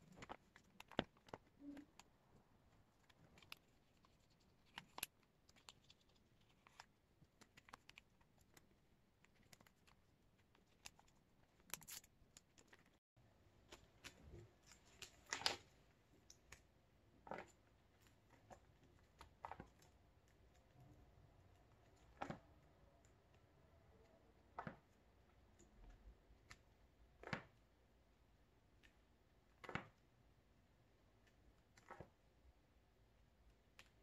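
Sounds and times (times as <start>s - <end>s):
plastic sleeves crinkling: 0.0s - 13.0s, 13.6s - 16.6s.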